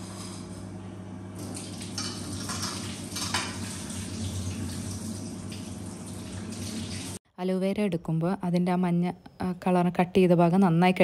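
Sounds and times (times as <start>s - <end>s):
tap water running: 1.4s - 7.2s.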